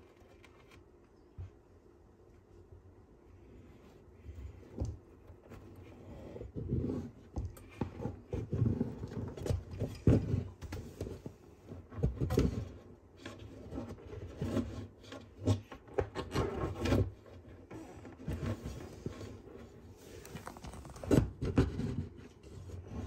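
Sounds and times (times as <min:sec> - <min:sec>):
tortoise shell scraping against wood: 0:03.6 - 0:12.6.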